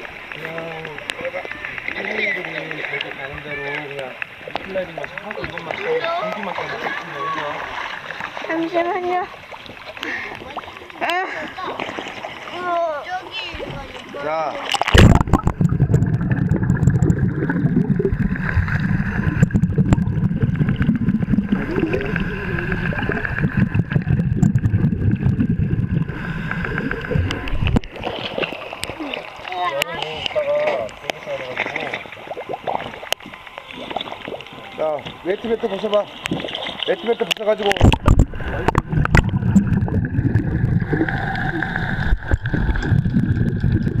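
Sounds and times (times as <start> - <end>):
splashing clicks: 14.6 - 18.2, 35.8 - 40.8
underwater bubbling of diver exhaust: 14.7 - 35.2, 36.0 - 44.0.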